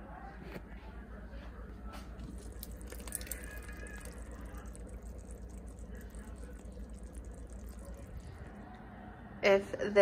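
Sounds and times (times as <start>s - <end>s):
chili bubbling in pot: 2.1s - 9.1s.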